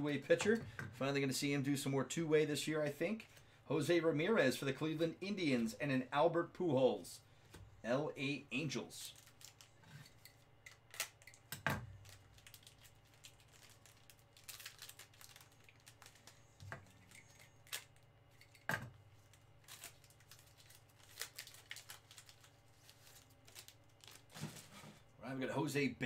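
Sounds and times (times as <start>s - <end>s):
wrapper crinkling and rustling: 9.0s - 24.9s.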